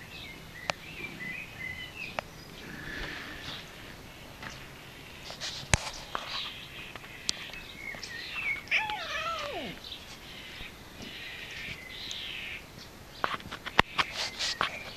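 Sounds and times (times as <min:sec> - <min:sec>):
cat meowing: 0:08.7 - 0:09.8.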